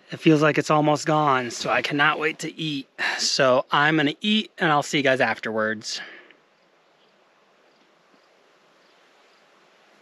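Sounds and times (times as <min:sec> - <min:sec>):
high insect chirps: 0:06.4 - 0:09.6.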